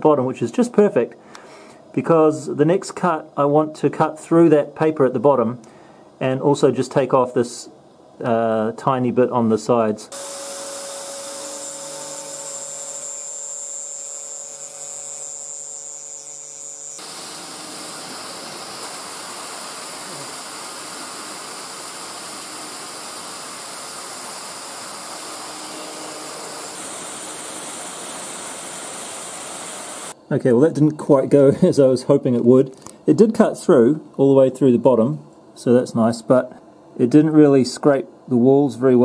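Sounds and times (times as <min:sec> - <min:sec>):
router spindle cutting metal: 0:10.1 - 0:19.2, 0:19.9 - 0:30.1.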